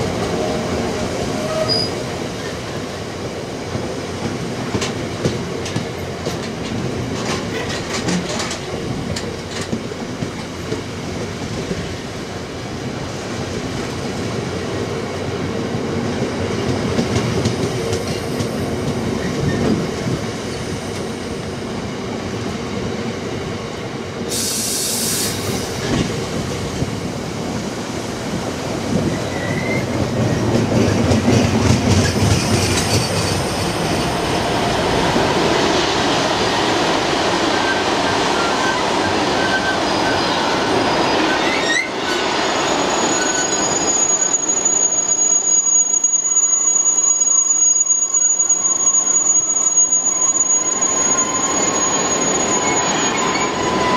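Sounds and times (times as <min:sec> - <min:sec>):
train wheels rumbling and clattering: 0:00.0 - 0:46.6
high-pitched wheel squeal: 0:01.4 - 0:02.0, 0:38.4 - 0:53.9
short hiss: 0:24.3 - 0:25.8.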